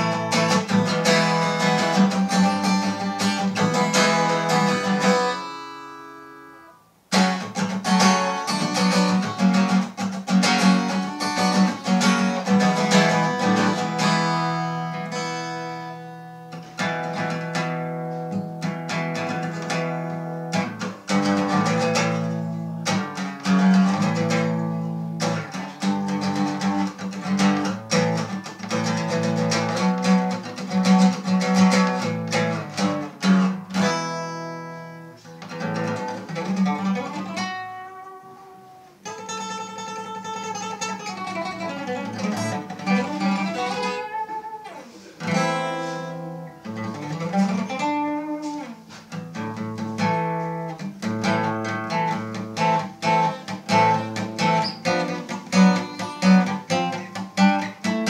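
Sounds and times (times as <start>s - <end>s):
acoustic guitar fingerstyle: 0.0s - 58.0s.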